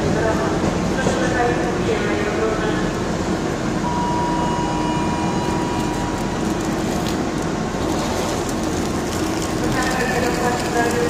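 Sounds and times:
locomotive engine rumble: 0:00.0 - 0:11.0
thin steady whine: 0:03.8 - 0:07.0.

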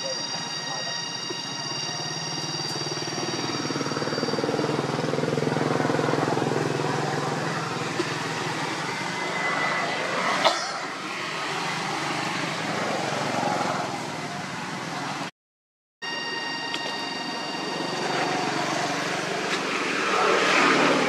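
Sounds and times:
vehicle engine running: 0:00.7 - 0:10.1, 0:16.8 - 0:21.0.

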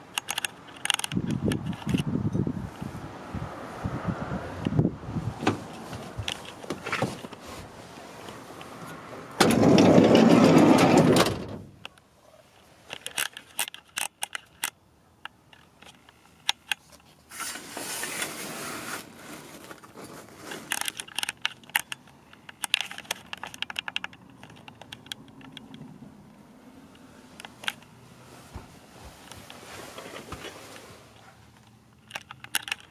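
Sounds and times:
curtain rings sliding on metal rod: 0:17.3 - 0:19.6.

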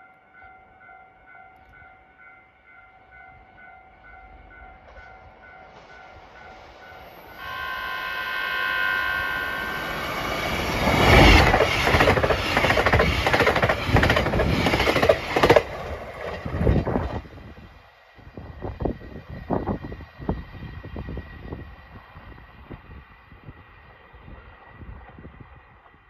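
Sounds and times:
train horn: 0:06.8 - 0:11.6
train wheels clattering over rails: 0:10.5 - 0:17.3.

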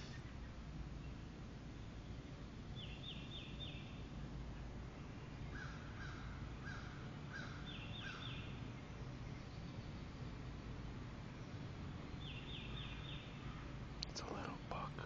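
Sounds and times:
high falling bird calls: 0:00.0 - 0:10.4, 0:11.2 - 0:14.4
faint low background noise: 0:00.0 - 0:15.0
low cawing bird calls: 0:02.4 - 0:10.0, 0:11.4 - 0:13.9.

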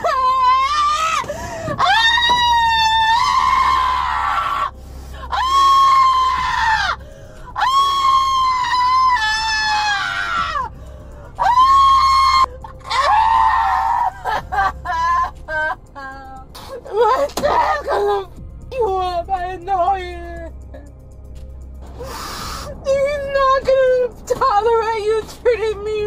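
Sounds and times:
woman screaming: 0:00.0 - 0:04.7, 0:05.3 - 0:07.0, 0:07.6 - 0:10.7, 0:11.4 - 0:16.2, 0:16.9 - 0:18.3.

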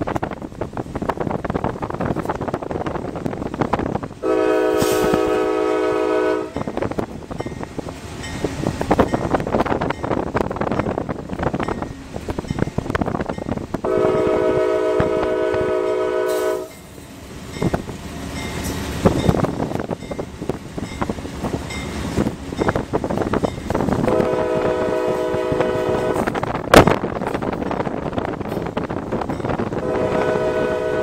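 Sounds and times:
locomotive air horn blasts: 0:04.2 - 0:06.7, 0:13.8 - 0:16.8, 0:24.0 - 0:26.4, 0:29.7 - 0:31.0.

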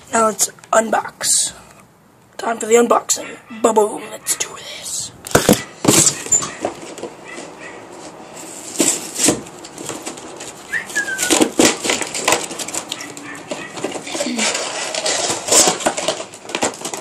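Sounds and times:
packaging crinkling and rustling: 0:05.3 - 0:17.0.

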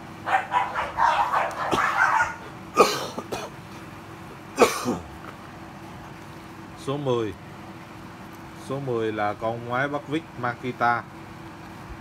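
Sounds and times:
person coughing: 0:02.8 - 0:03.6, 0:04.6 - 0:05.1.

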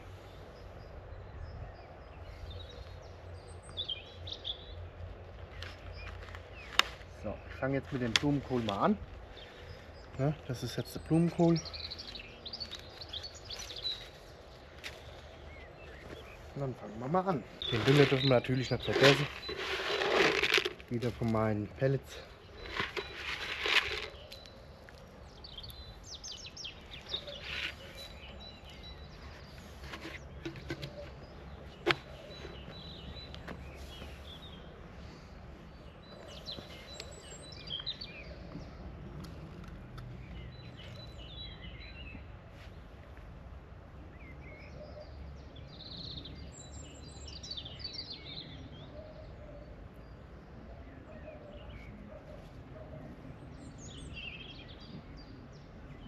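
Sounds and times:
small birds chirping: 0:00.0 - 0:43.4, 0:44.0 - 0:56.0
trowel scraping dry soil: 0:17.6 - 0:21.4, 0:22.5 - 0:24.5, 0:27.0 - 0:32.6
pellets rattling in plastic bucket: 0:17.7 - 0:20.9, 0:22.7 - 0:24.1.

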